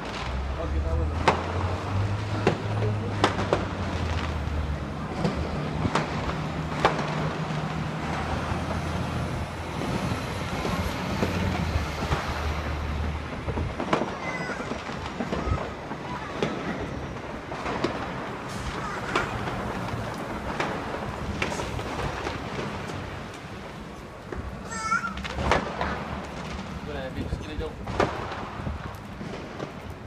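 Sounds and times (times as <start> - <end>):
fireworks bangs: 0.0 - 30.0
low rumble of traffic: 0.0 - 30.0.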